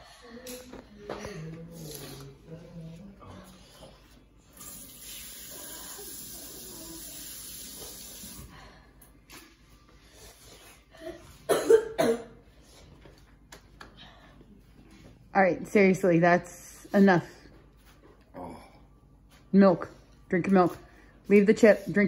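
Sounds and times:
person coughing loudly: 11.5 - 12.4.

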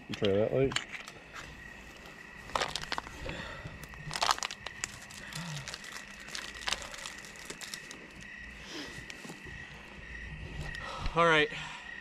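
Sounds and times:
rustling and crinkling handling: 1.0 - 10.0
sharp clicks and crackles: 2.4 - 8.2.

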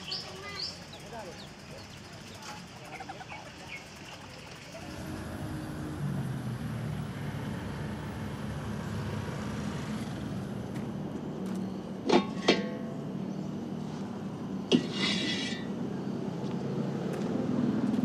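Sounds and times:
small birds chirping: 0.0 - 4.7
traffic engines rumbling: 0.0 - 18.0.

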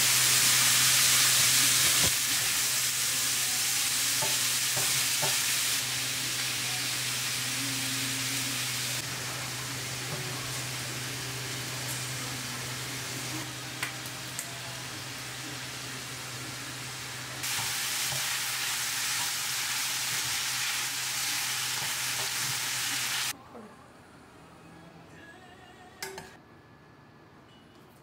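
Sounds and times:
meat sizzling in a frying pan: 0.0 - 12.2, 14.9 - 23.3.

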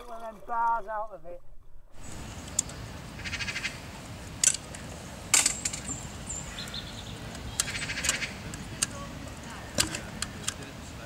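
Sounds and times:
metal grill bars clicking and rattling: 4.4 - 6.0.

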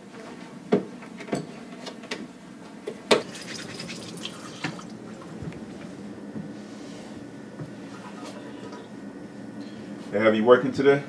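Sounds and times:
water pouring: 3.2 - 5.6.

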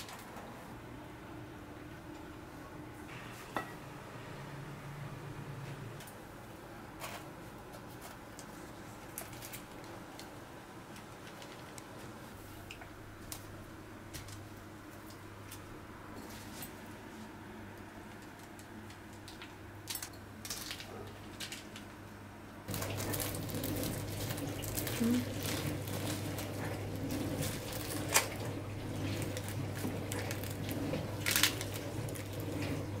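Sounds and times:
pastry crackling under hands: 22.7 - 33.0.

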